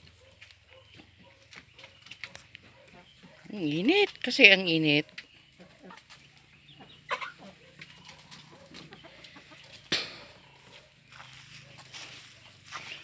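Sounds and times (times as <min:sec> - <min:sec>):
chickens clucking softly: 0:05.1 - 0:12.2.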